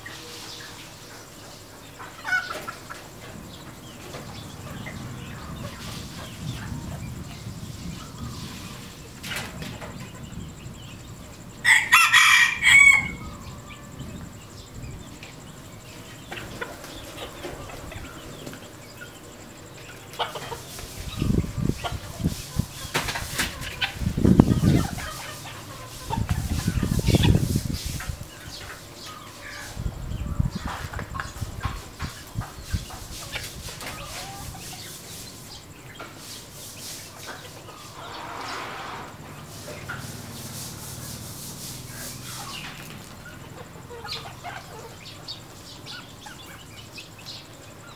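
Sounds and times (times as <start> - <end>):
hens clucking: 0.0 - 47.9
rooster crowing: 11.6 - 14.0.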